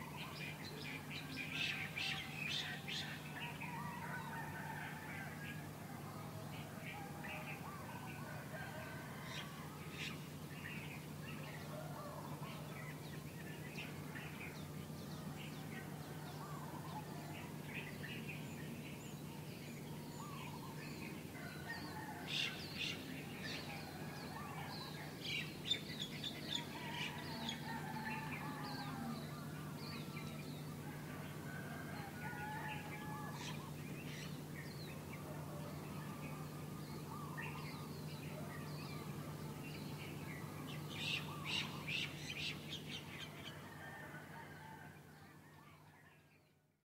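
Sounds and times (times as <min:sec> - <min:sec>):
steady low hum: 0:00.0 - 0:45.9
small birds chirping: 0:09.4 - 0:43.9.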